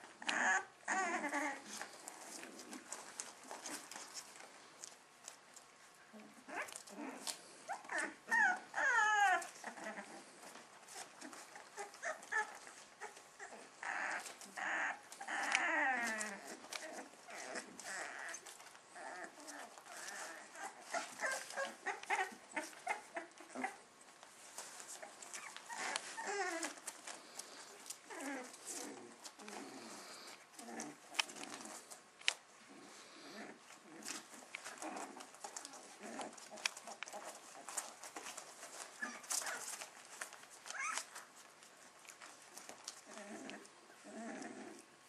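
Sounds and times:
puppies whimpering and yelping: 0:00.0 - 0:44.9
small clicks and scuffles: 0:01.6 - 0:05.8, 0:23.6 - 0:32.5, 0:33.7 - 0:43.7.

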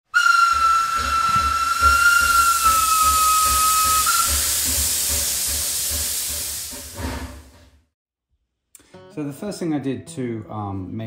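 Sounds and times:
steam locomotive whistle: 0:00.1 - 0:06.4
escaping steam hissing: 0:00.1 - 0:07.7.

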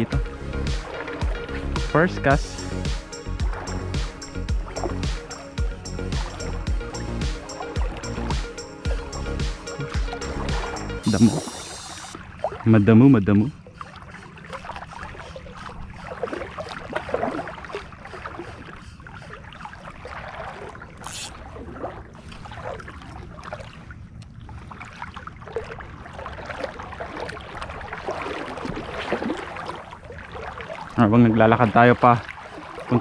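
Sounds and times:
steady low rumble: 0:00.0 - 0:12.2
seawater splashing around legs: 0:00.0 - 0:33.0.

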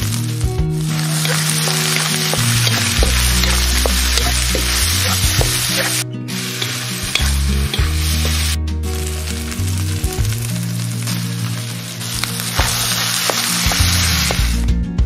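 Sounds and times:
rice sizzling in a hot pan: 0:00.0 - 0:14.7
background music: 0:00.0 - 0:15.0
small pops: 0:01.1 - 0:06.0, 0:12.2 - 0:14.6.

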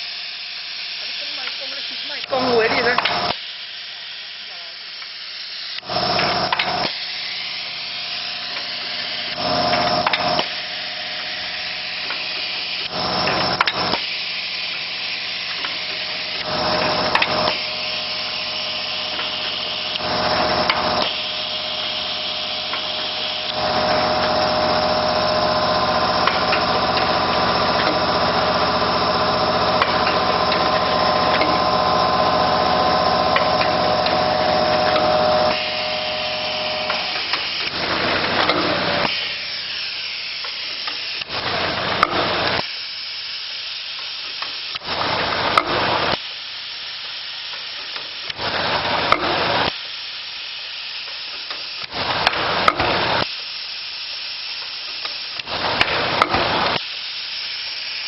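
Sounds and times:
machine humming: 0:00.0 - 0:43.0
machine hissing and clatter: 0:00.0 - 0:58.0.

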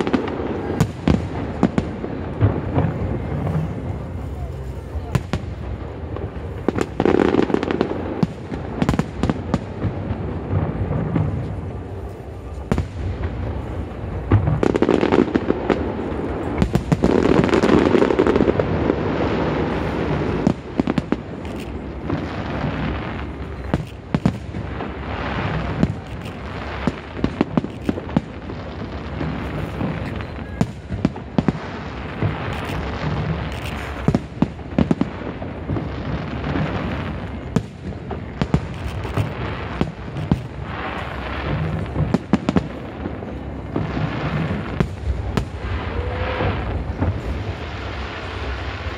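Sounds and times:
fireworks booming and crackling: 0:00.0 - 0:48.9.

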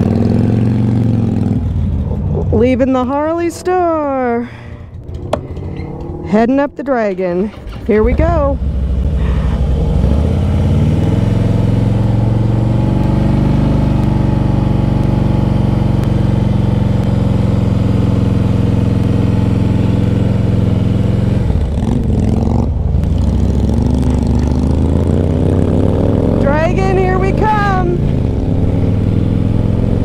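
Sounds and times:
motorcycle engine accelerating: 0:00.0 - 0:30.0.

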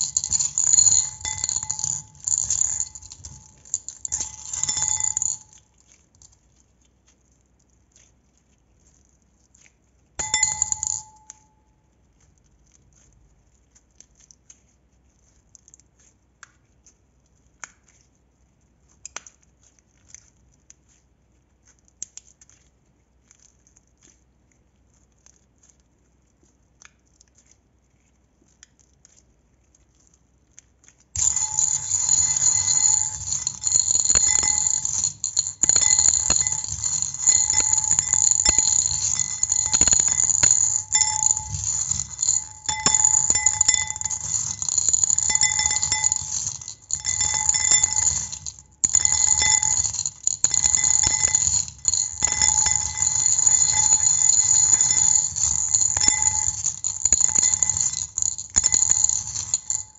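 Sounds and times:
bell-like ringing: 0:00.0 - 0:05.6, 0:10.2 - 0:11.5, 0:31.2 - 0:59.9.

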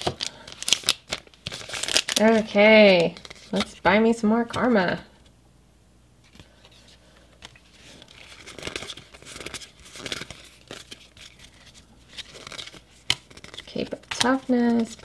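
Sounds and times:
foil wrapper crinkling and tearing: 0:00.0 - 0:03.8, 0:07.9 - 0:15.0
stiff cards being handled: 0:06.2 - 0:15.0.

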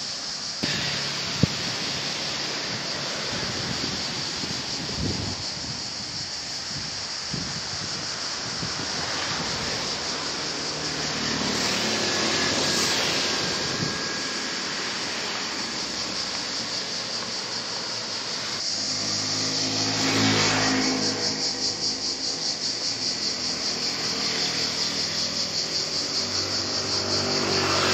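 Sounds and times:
insects shrilling: 0:00.0 - 0:27.9
motor vehicle engine: 0:00.6 - 0:07.0.

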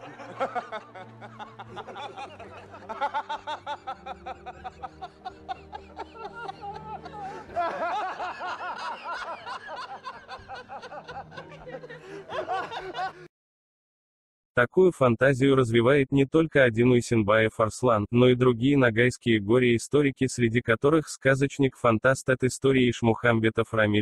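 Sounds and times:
men laughing hard: 0:00.0 - 0:13.3.

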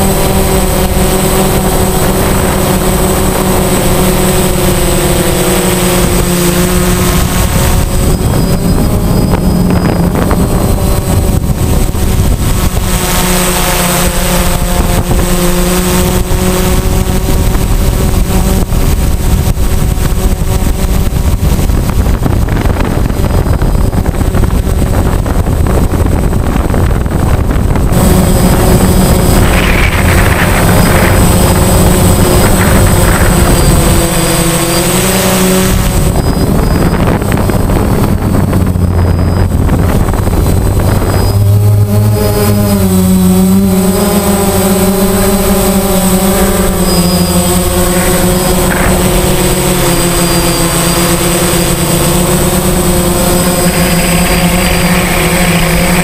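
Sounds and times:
drone propellers whirring: 0:00.0 - 0:56.0
rushing noise: 0:24.3 - 0:43.8.

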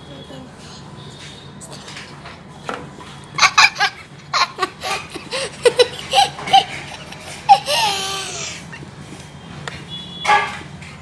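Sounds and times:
child giggling: 0:03.4 - 0:08.8.

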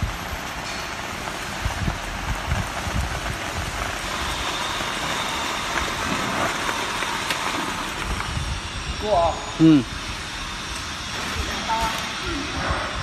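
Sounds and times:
roller conveyor rattling: 0:00.0 - 0:09.5.

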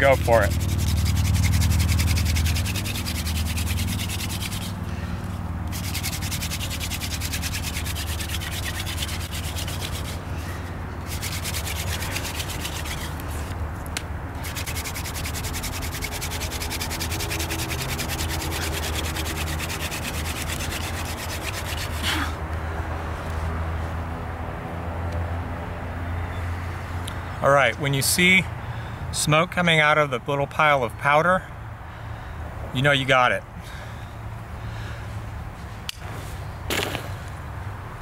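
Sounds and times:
hand drill rasping on wood: 0:00.0 - 0:04.8, 0:05.7 - 0:13.6, 0:14.3 - 0:22.2.

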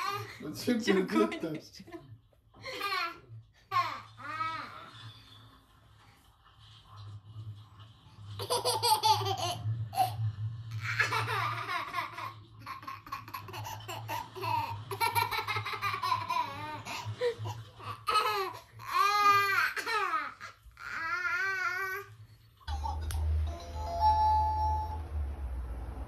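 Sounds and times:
baby laughing: 0:08.4 - 0:10.2, 0:10.8 - 0:21.6.

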